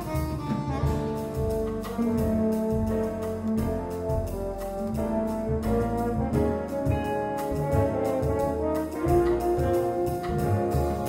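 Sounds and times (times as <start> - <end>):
double bass notes: 0.0 - 11.0
drum and cymbal strokes: 0.0 - 11.0
horns and tuba chords: 0.0 - 11.0.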